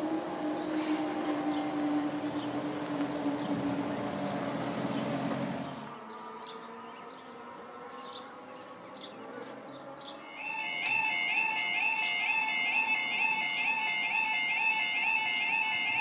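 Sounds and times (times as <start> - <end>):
diesel train engine and wheel rumble: 0.0 - 6.0.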